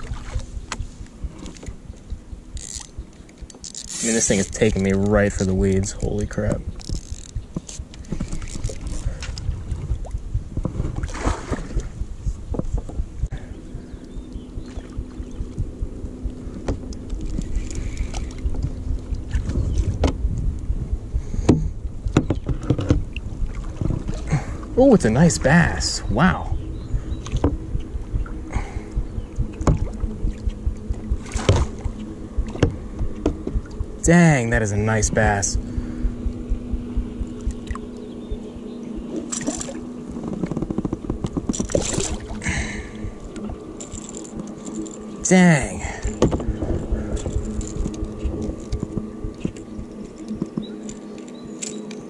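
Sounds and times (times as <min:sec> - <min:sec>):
low rumble: 0:00.0 - 0:51.2
paddle in water: 0:00.0 - 0:52.0
steady low hum: 0:00.0 - 0:52.0
paddle knocking on plastic hull: 0:21.5 - 0:24.2, 0:32.4 - 0:33.8
fish thrashing in water: 0:39.1 - 0:45.1.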